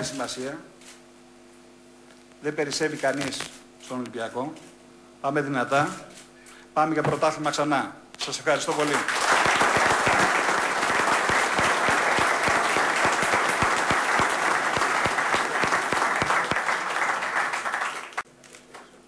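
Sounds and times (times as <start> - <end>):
audience applauding: 8.7 - 18.9.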